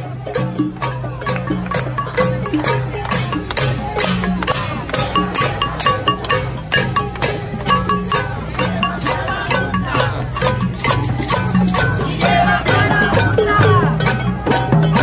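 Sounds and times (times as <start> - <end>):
crowd beating pots and pans: 0.0 - 15.0
frame drums beating: 0.0 - 15.0
voices shouting: 7.0 - 15.0.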